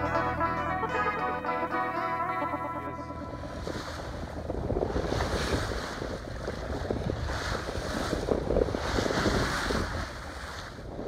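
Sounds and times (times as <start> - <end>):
water rushing along hull: 1.5 - 11.0
wind buffeting microphone: 3.3 - 11.0.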